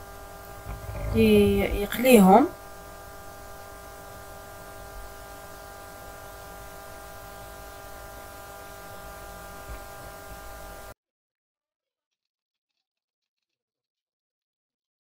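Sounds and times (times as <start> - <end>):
electrical hum and hiss: 0.0 - 11.0.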